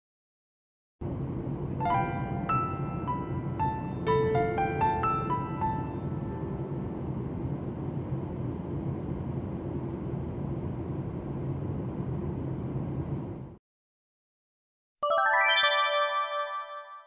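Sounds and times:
jet airliner cabin noise: 1.0s - 13.6s.

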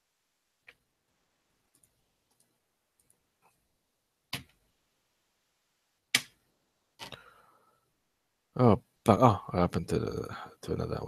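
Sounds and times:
computer mouse clicking: 1.7s - 3.2s.

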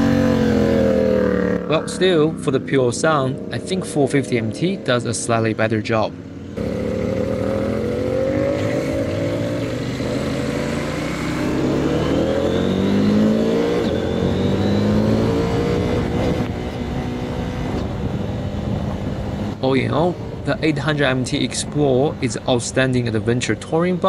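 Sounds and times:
motorcycle engine running: 6.1s - 13.3s.

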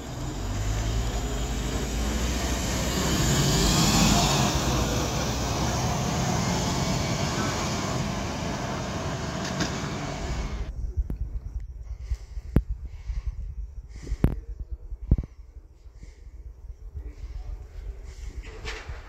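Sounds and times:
heavy vehicle passing: 0.0s - 10.7s.

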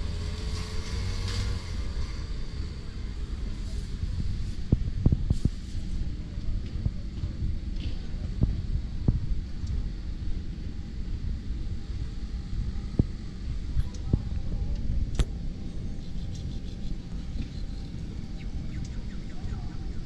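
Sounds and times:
low outdoor rumble: 0.0s - 20.0s.

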